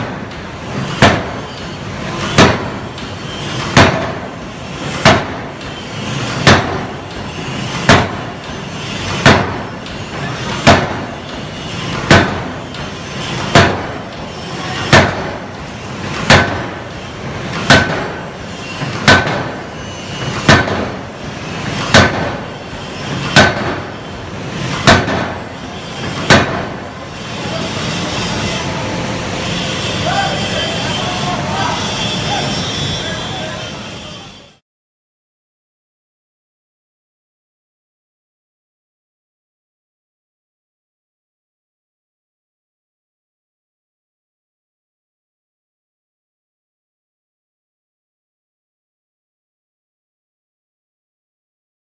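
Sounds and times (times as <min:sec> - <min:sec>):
forging hammer blows on hot steel: 0:00.0 - 0:34.6.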